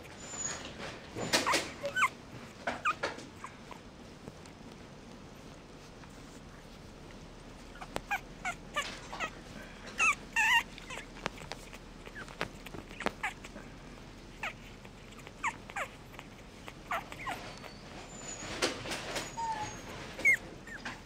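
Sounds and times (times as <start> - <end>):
puppies squeaking and whimpering: 0.0 - 4.1, 7.5 - 21.0.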